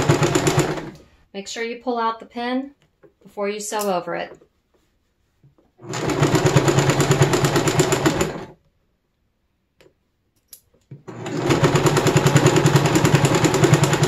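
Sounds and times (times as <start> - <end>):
sewing machine stitching: 0.0 - 1.1, 5.8 - 8.6, 11.0 - 14.0.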